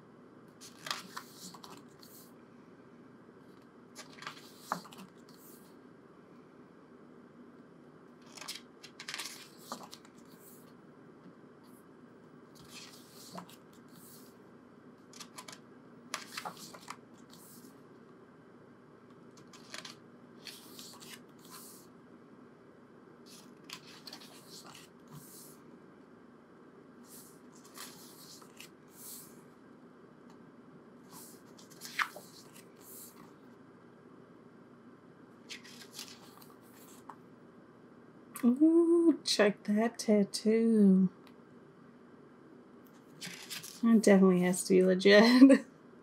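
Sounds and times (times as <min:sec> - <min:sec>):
low steady hum: 0:00.0 - 0:46.0
book pages turning: 0:00.6 - 0:02.3, 0:03.5 - 0:05.7, 0:08.2 - 0:10.7, 0:12.6 - 0:14.3, 0:15.1 - 0:17.8, 0:19.3 - 0:21.8, 0:23.3 - 0:25.6, 0:27.1 - 0:29.4, 0:31.1 - 0:33.4, 0:35.4 - 0:37.2, 0:42.9 - 0:43.8.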